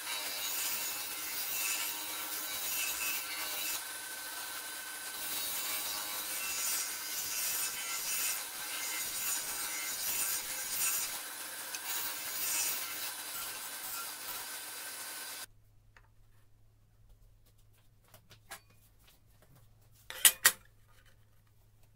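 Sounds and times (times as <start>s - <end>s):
disc sander hissing on wood: 13.1s - 15.5s.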